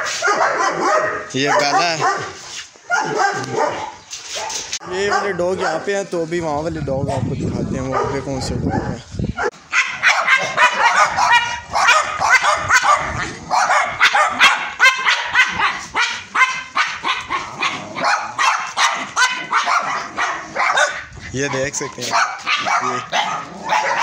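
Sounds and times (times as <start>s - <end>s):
small dogs barking rapidly: 0.0s - 6.0s, 7.9s - 24.0s.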